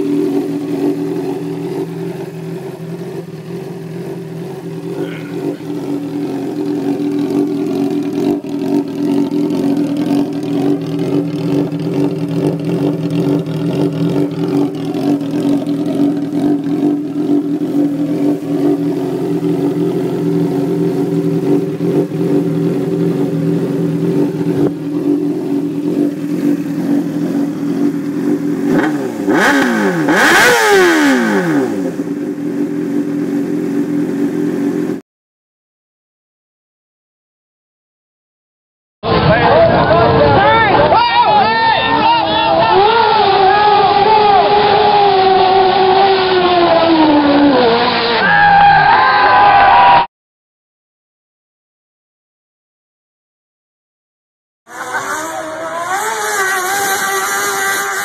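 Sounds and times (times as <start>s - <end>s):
engine idling through exhaust: 0.0s - 29.3s
engine revving: 0.0s - 35.0s, 41.8s - 50.0s, 54.7s - 58.0s.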